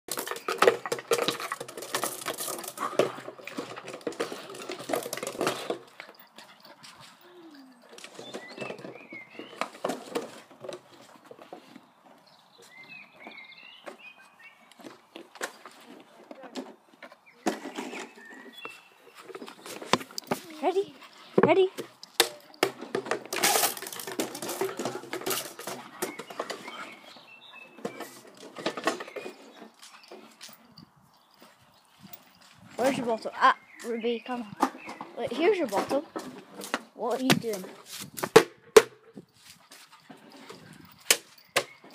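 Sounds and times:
plastic bottle clattering on stone: 0:00.1 - 0:06.2, 0:21.4 - 0:26.9, 0:27.8 - 0:29.5.

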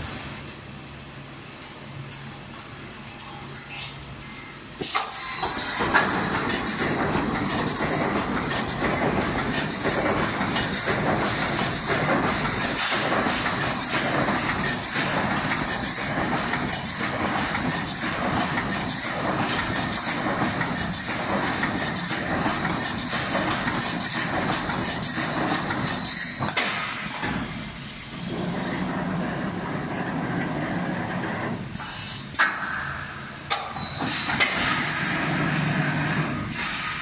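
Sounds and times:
machine hum: 0:00.0 - 0:26.3
welding machine clattering: 0:01.6 - 0:27.5.

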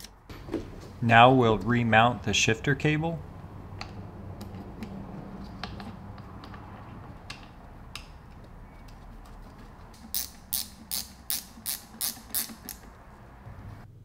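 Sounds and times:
ratchet wrench in short strokes: 0:10.0 - 0:12.9.

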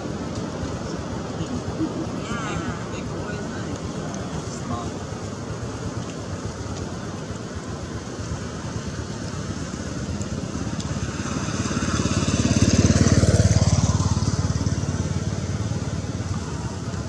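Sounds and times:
vehicle engine passing by: 0:02.0 - 0:05.1, 0:09.5 - 0:16.9.

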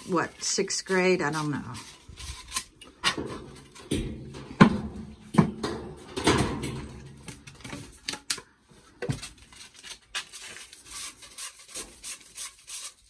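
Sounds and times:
plastic pipe scraping and knocking: 0:00.0 - 0:08.2.

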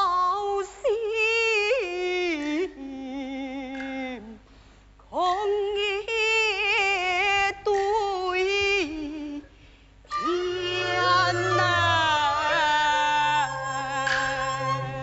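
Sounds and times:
woman singing opera aria: 0:00.0 - 0:04.4, 0:05.2 - 0:09.5, 0:10.1 - 0:15.0
low instrumental accompaniment: 0:10.1 - 0:15.0.

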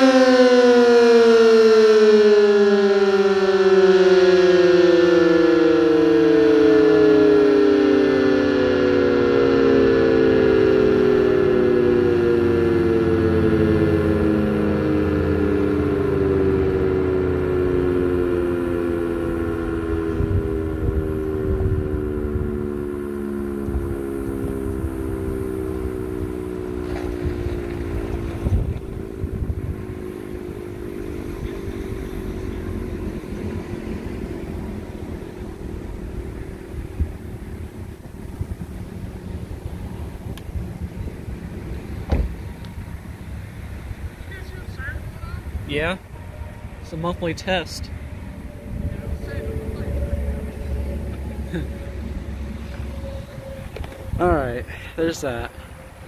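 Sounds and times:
tornado siren winding down: 0:00.0 - 0:56.0
wind noise on microphone: 0:19.7 - 0:23.0, 0:23.6 - 0:43.0, 0:48.2 - 0:50.8, 0:52.0 - 0:54.8.

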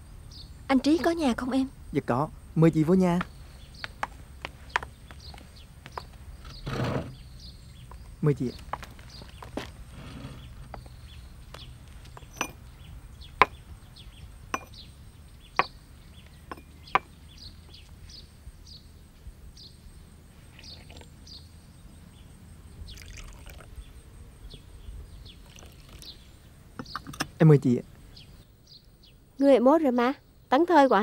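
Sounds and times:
porcelain teacups clinking: 0:12.2 - 0:12.6, 0:14.5 - 0:14.8, 0:16.5 - 0:17.1, 0:25.4 - 0:26.0, 0:26.8 - 0:27.4
tea pouring into cups: 0:20.6 - 0:21.2, 0:22.9 - 0:23.8, 0:25.3 - 0:26.2.

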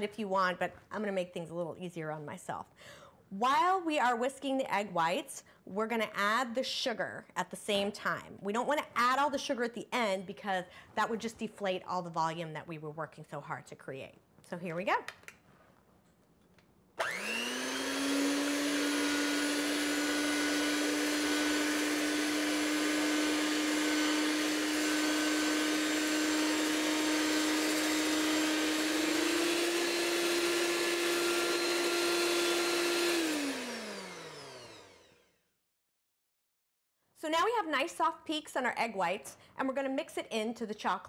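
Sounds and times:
electric hand mixer whirring: 0:17.0 - 0:35.4.

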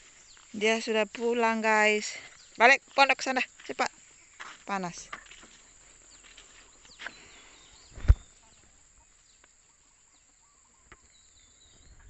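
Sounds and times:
faint bird chirps: 0:05.1 - 0:12.0
sharp thump: 0:08.0 - 0:08.3.

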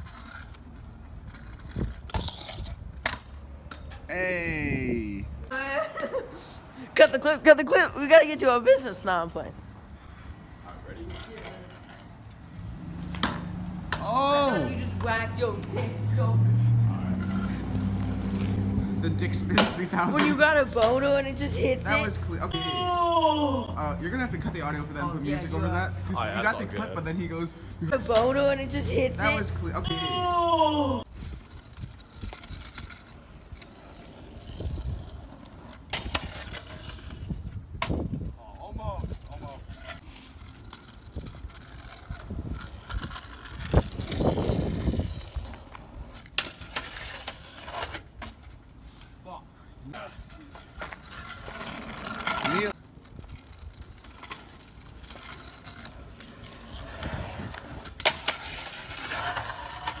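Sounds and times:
scooter scraping along ledge: 0:00.0 - 0:04.1, 0:05.5 - 0:49.2, 0:49.8 - 1:00.0
scooter wheels rolling on asphalt: 0:00.0 - 1:00.0
scooter clacking on concrete: 0:10.9 - 0:16.1, 0:17.0 - 0:22.9, 0:27.9 - 0:30.2, 0:49.9 - 1:00.0
scooter clacking on concrete ledge: 0:17.1 - 0:22.8.

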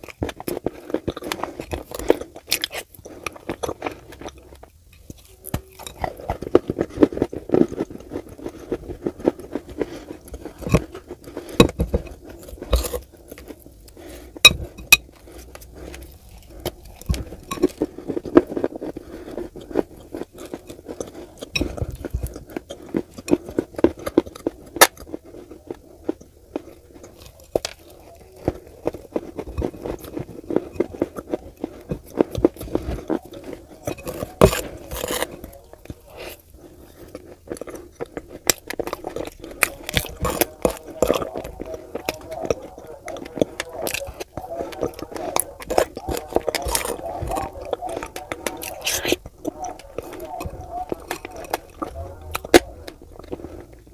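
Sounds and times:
crunchy chewing: 0:00.0 - 0:53.9.

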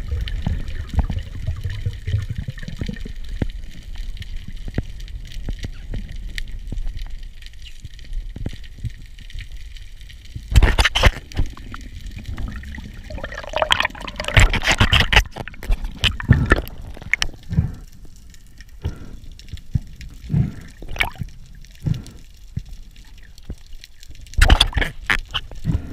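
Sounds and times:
water rushing and gurgling: 0:00.0 - 0:04.0, 0:10.5 - 0:19.2, 0:19.9 - 0:22.2, 0:22.8 - 0:25.9.

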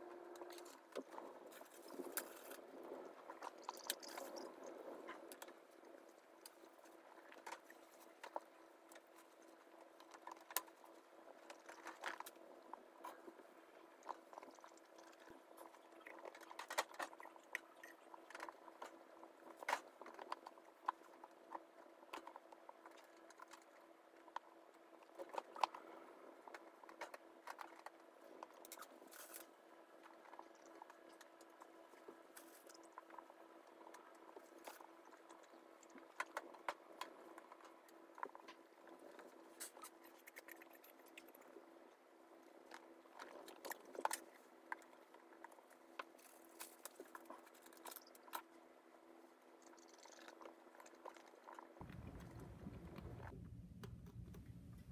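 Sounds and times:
low hum: 0:51.8 - 0:54.9.

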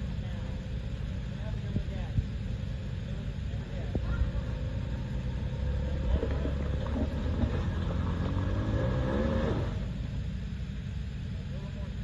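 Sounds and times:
low rumble: 0:00.0 - 0:12.0
truck engine revving: 0:04.2 - 0:10.3.

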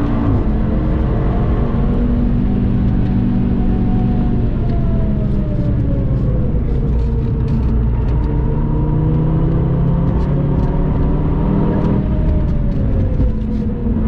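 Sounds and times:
car engine from inside cabin: 0:00.0 - 0:14.0.

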